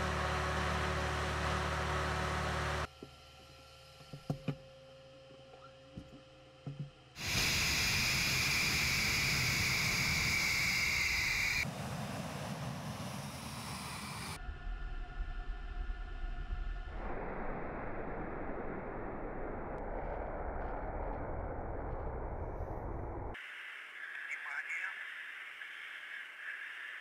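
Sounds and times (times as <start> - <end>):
jet engines rushing: 7.2 - 14.4
jet engine whine: 7.2 - 24.1.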